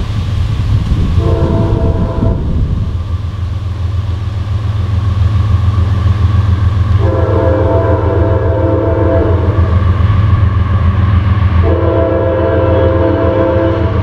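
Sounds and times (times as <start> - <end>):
low diesel rumble: 0.0 - 14.0
locomotive air horn: 1.2 - 2.7, 6.9 - 9.8, 11.6 - 14.0.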